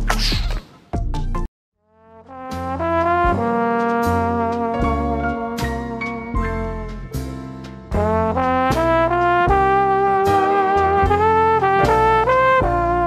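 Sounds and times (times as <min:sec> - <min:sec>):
brass horn tune: 0:01.8 - 0:07.3, 0:07.9 - 0:13.0
steady drum beat: 0:07.9 - 0:12.9.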